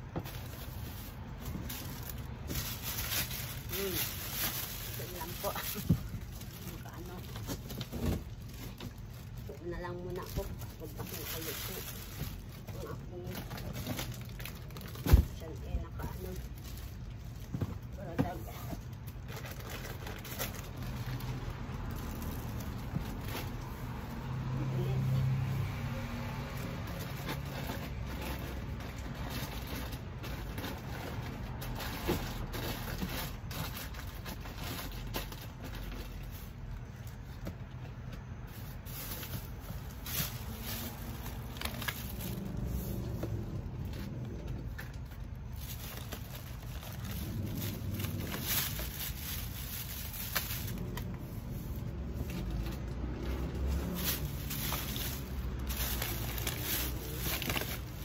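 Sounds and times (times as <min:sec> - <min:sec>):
rustles of packing goods: 0:00.0 - 0:58.0
steady low rumble: 0:35.4 - 0:58.0.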